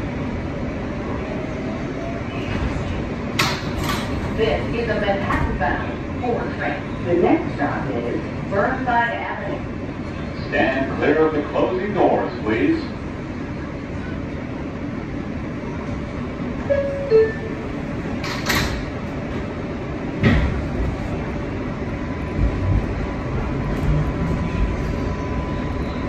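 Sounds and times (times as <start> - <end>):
train rumble and motor hum: 0.0 - 26.0
two-note door chime: 16.7 - 17.7.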